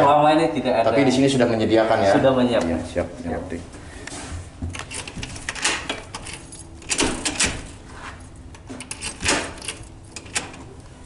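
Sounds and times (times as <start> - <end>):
keys jangling in door lock: 4.8 - 7.8, 8.5 - 10.7.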